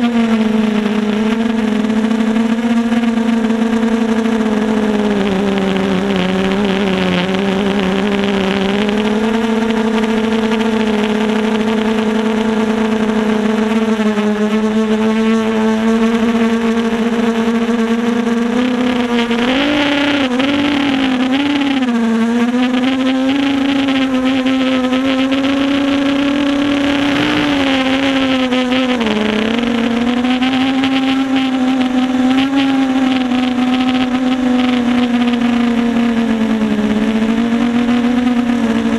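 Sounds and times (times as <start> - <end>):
quadcopter motors droning: 0.0 - 38.9.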